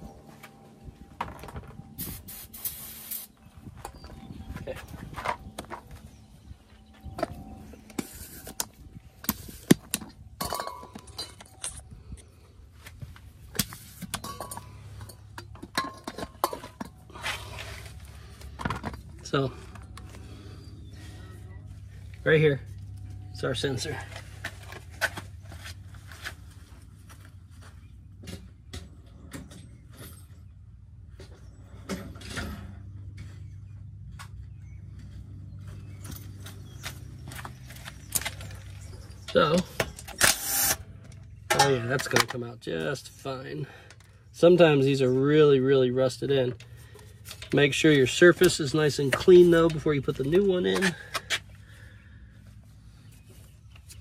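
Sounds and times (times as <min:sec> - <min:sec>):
steady low hum: 0:00.0 - 0:54.0
metal tools clinking and knocking: 0:06.8 - 0:12.4, 0:13.5 - 0:17.1.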